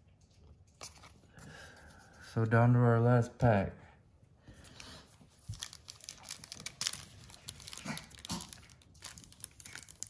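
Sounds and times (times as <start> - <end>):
foil wrapper crinkling: 5.3 - 10.0.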